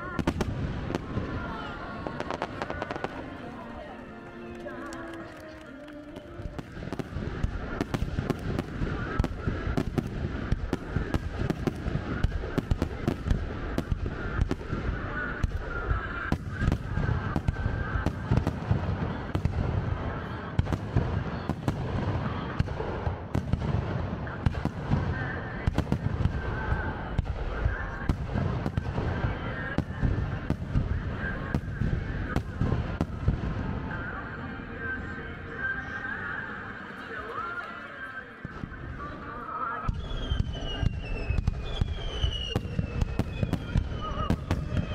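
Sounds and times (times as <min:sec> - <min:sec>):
fireworks bangs and crackles: 0:00.0 - 0:44.9.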